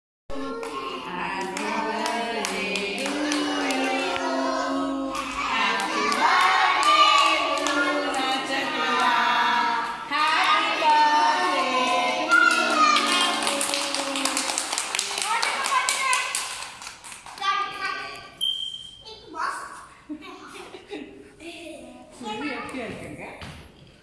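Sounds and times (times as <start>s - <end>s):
person singing: 0.3s - 14.5s.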